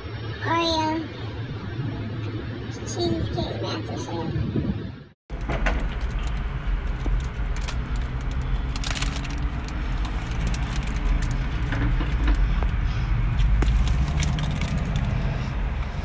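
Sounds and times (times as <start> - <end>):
paper wrapper crinkling: 7.0 - 11.7.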